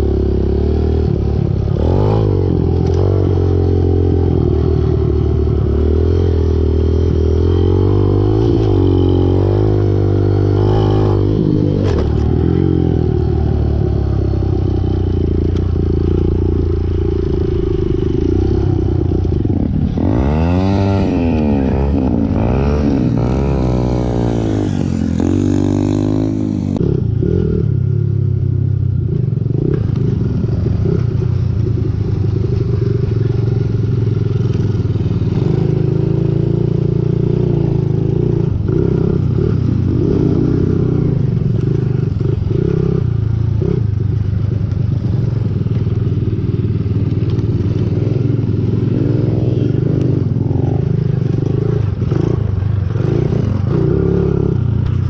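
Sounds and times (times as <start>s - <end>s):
pit bike engine revving: 0.0s - 27.7s.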